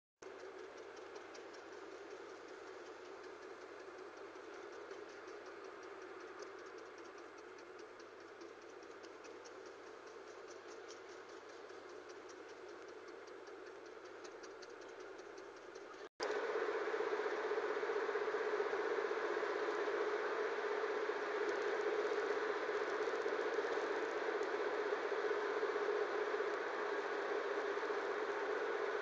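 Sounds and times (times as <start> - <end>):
light regular ticking: 0.2 - 16.5.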